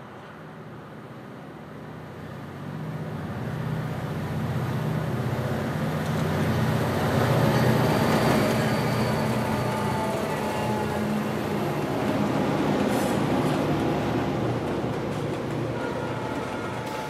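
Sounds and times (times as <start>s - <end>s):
locomotive engines humming: 3.9s - 17.0s
train wheels on rails: 4.9s - 17.0s.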